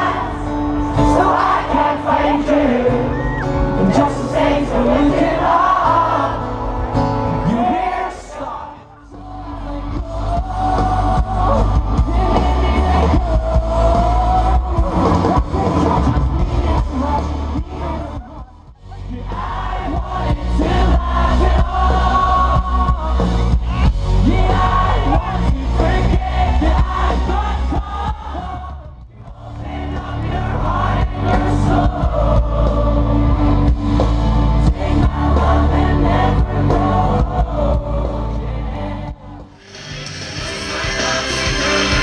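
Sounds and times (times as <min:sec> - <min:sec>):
live band music: 0:00.0 - 0:38.0, 0:39.4 - 0:42.0
person singing: 0:39.6 - 0:42.0.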